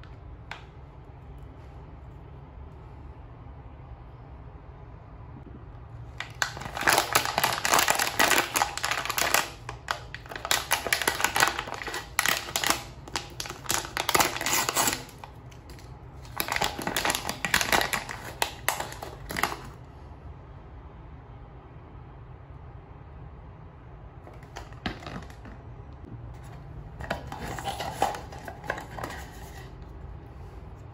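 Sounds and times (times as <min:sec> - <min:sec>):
plastic foil pouch crinkling: 0:06.2 - 0:19.8, 0:27.0 - 0:29.7.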